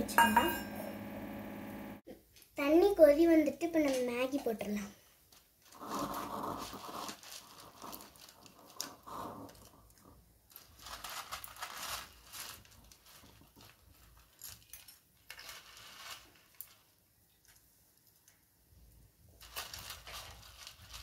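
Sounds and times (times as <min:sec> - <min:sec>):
dry noodles rustling and clicking: 0:05.3 - 0:18.6, 0:19.3 - 0:21.0.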